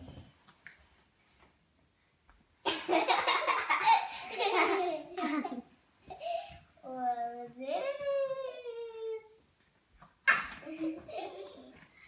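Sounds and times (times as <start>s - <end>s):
children laughing: 2.7s - 6.4s, 10.3s - 12.0s.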